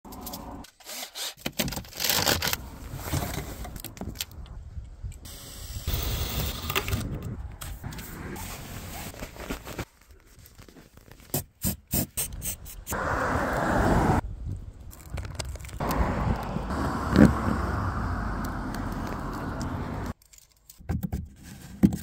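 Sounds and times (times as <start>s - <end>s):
handling and rustling: 6.4s - 11.6s, 18.9s - 22.0s.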